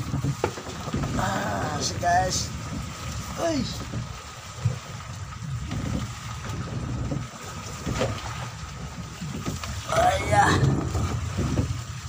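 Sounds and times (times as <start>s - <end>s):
rain: 0.0s - 12.0s
waves against boat hull: 0.0s - 12.0s
wind: 0.0s - 12.0s
low rumble: 3.8s - 12.0s.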